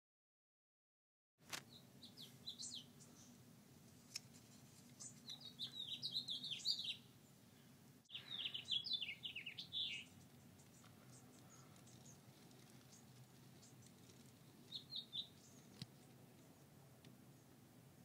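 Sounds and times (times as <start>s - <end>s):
songbird chirping: 1.5s - 18.0s.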